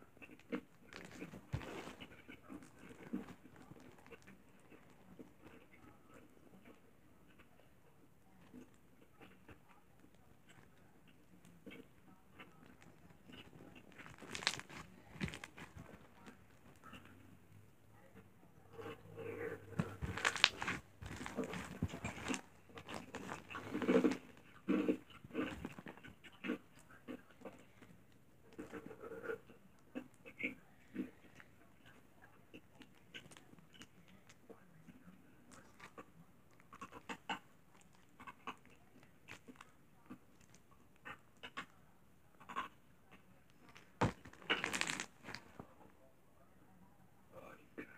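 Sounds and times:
slime crackling and popping: 0:13.3 - 0:16.2, 0:19.8 - 0:24.2, 0:43.8 - 0:45.4.

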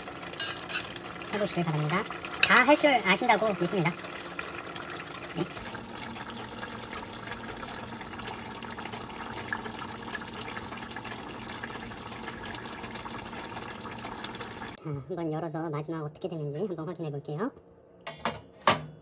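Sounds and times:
stew bubbling in a pot: 0:00.0 - 0:14.8.

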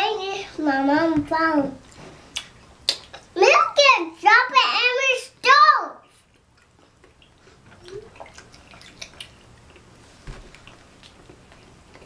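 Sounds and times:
wet chewing and lip-smacking: 0:01.8 - 0:03.3, 0:06.1 - 0:12.0.

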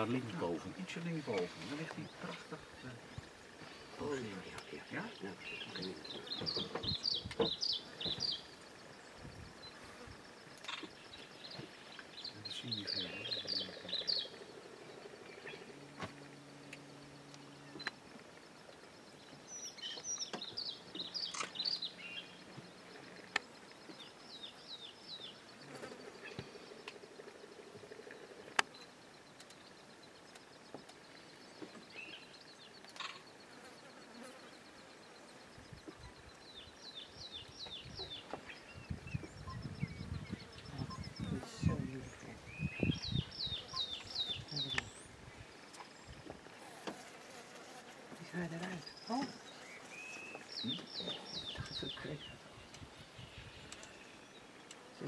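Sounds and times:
faint insect buzz: 0:00.0 - 0:55.0.

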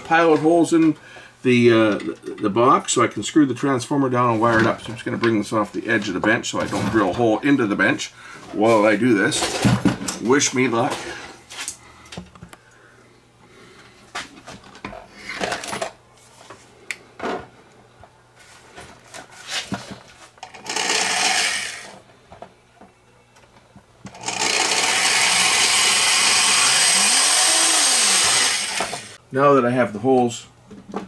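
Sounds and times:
electric drill boring into sheet metal: 0:20.4 - 0:22.0, 0:24.1 - 0:29.2.

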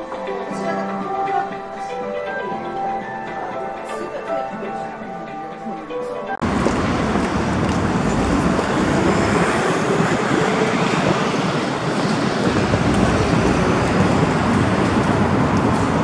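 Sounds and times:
road traffic hum: 0:06.4 - 0:16.0.

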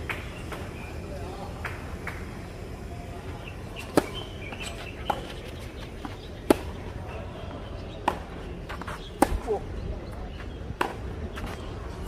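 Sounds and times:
rackets hitting tennis ball: 0:03.8 - 0:06.9, 0:08.0 - 0:09.6, 0:10.8 - 0:11.6.

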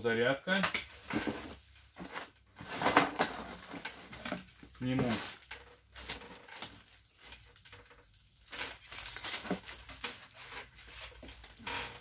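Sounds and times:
plastic packaging crinkling: 0:02.8 - 0:12.0.

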